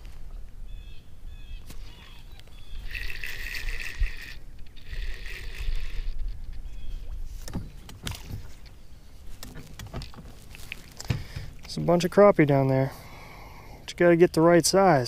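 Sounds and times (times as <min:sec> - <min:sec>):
fishing reel gears whirring: 0:02.6 - 0:06.3.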